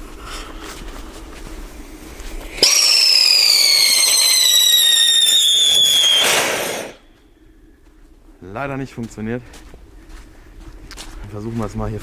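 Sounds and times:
hiss of sparks: 2.1s - 7.0s
firework whistle falling in pitch: 2.4s - 7.1s.

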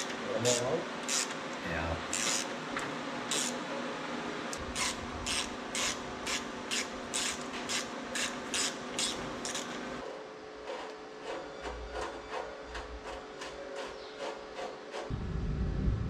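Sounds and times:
steady low hum: 0.0s - 10.0s, 15.1s - 16.0s
ratchet wrench rasping: 2.1s - 2.5s, 3.3s - 3.6s, 4.7s - 9.6s.

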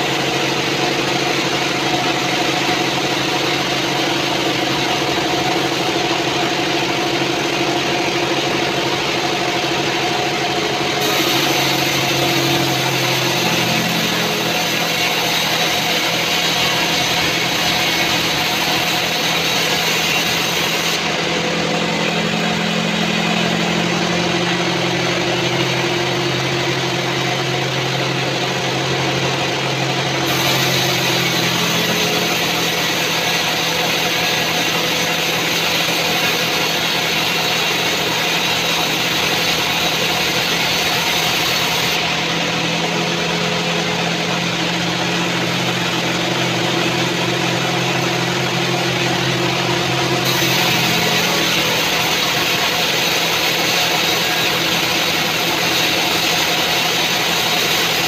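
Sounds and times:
machine hum: 0.0s - 58.0s
band saw blade hissing in wood: 10.9s - 21.2s, 30.2s - 42.1s, 50.2s - 58.0s.

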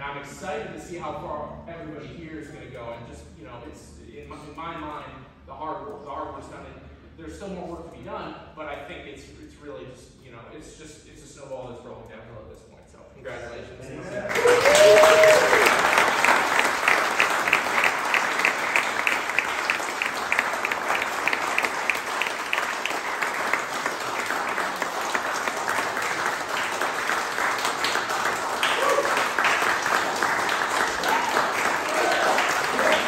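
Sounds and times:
crowd clapping: 14.1s - 33.0s.

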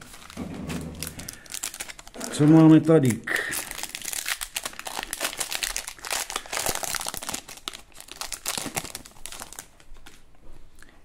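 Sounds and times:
foil wrapper tearing and crinkling: 0.0s - 0.4s, 1.0s - 10.2s.

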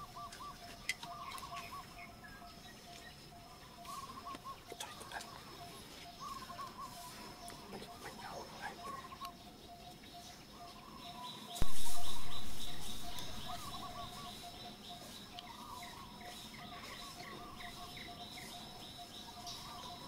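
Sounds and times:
birds chirping and trilling: 0.0s - 20.0s
loud thump: 11.6s - 12.9s
faint drone: 11.6s - 20.0s.

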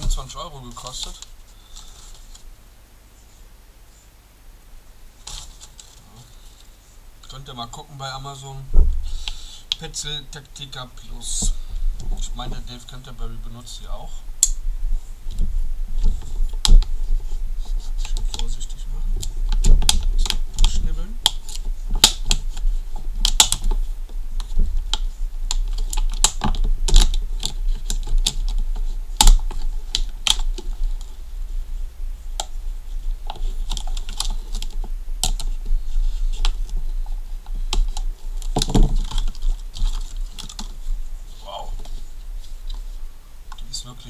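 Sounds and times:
steady low hum: 0.0s - 44.0s
sharp plastic clicks and crackles: 19.2s - 23.8s, 24.4s - 31.1s, 33.2s - 36.8s, 37.5s - 40.8s.

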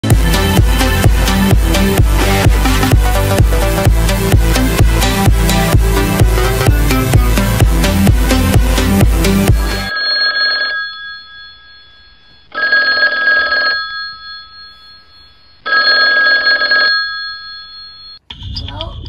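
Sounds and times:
telephone ringing: 9.8s - 18.2s.

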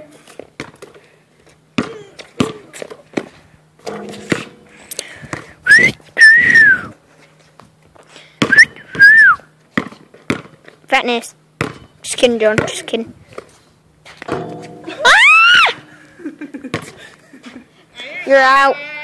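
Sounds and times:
basketball bouncing on concrete: 0.4s - 1.0s, 1.8s - 5.6s, 8.4s - 10.8s, 11.6s - 13.5s, 14.2s - 15.9s, 16.6s - 17.0s
person whistling: 5.7s - 6.9s, 8.5s - 9.4s.

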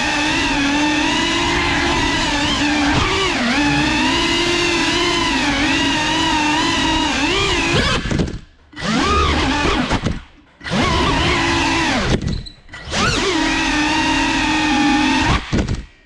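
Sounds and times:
drone motors whining: 0.0s - 15.8s.

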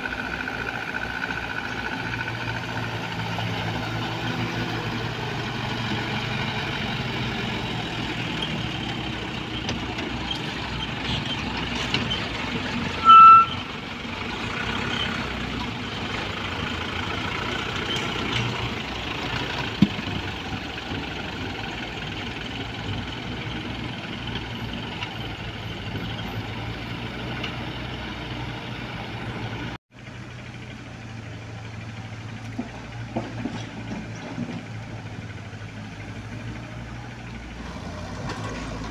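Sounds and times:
diesel engines running: 0.0s - 38.9s
high beep: 13.0s - 13.6s.

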